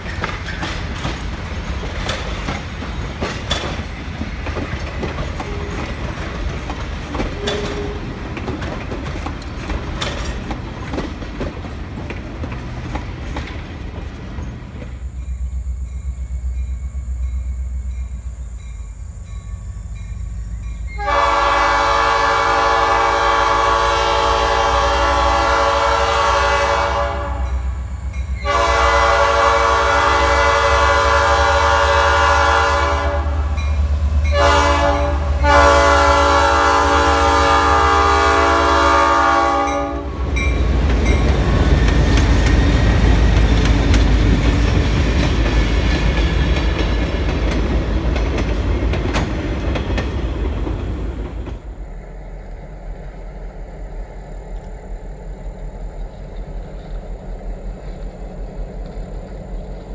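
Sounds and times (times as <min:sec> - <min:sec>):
wheels clacking over rail joints: 0:00.0 - 0:15.0, 0:37.7 - 0:51.8
train rumbling past: 0:00.0 - 0:59.9
locomotive horn blasts: 0:07.3 - 0:08.2, 0:20.9 - 0:33.6, 0:34.2 - 0:40.3.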